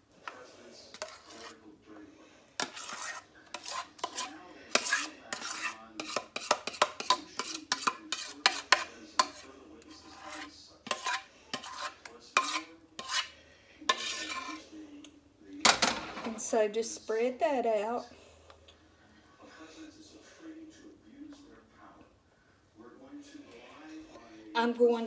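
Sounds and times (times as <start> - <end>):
spoon scraping a metal pot: 0.2 - 1.7, 2.6 - 14.8.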